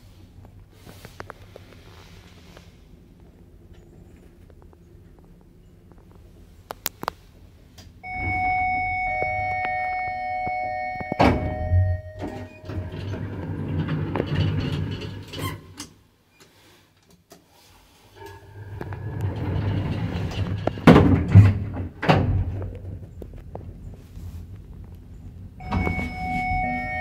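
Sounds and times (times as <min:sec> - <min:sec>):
steady electronic tone: 0:08.0 - 0:12.7, 0:25.6 - 0:27.0
elevator mechanism running: 0:08.0 - 0:15.4, 0:18.3 - 0:21.5, 0:25.6 - 0:27.0
elevator mechanism clunking: 0:08.0 - 0:15.6, 0:25.6 - 0:27.0
sliding doors shutting: 0:08.0 - 0:15.9, 0:18.2 - 0:22.6, 0:25.6 - 0:27.0.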